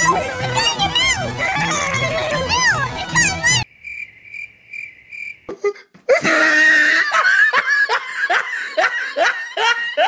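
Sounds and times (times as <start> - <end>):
cricket chirping: 3.6 - 5.6
person laughing loudly: 5.5 - 10.0.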